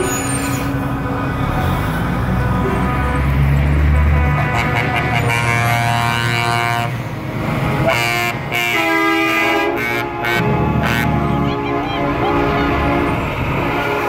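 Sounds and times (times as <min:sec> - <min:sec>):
diesel engine rumble: 0:00.0 - 0:14.0
truck air horn blasts: 0:02.4 - 0:07.0, 0:07.6 - 0:14.0.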